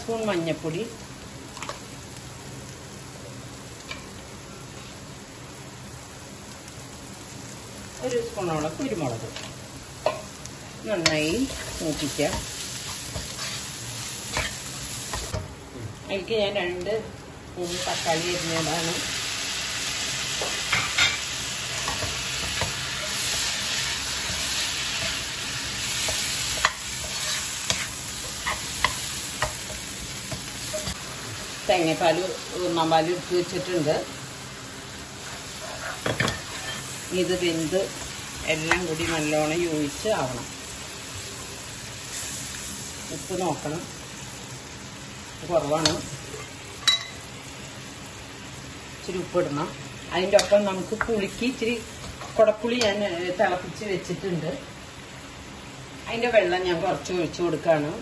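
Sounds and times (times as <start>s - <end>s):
shallots sizzling in oil: 0.0s - 58.0s
spatula scraping and tapping pan: 26.0s - 31.0s.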